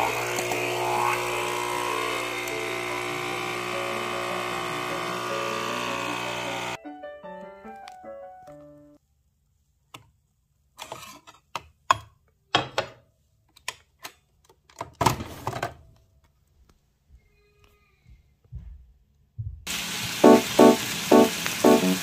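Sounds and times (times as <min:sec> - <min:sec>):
short musical notes: 0:20.2 - 0:22.0.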